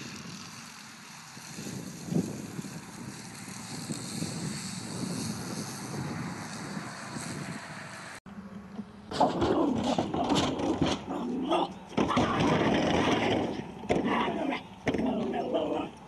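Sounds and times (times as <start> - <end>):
wind noise on microphone: 0.0 - 8.2.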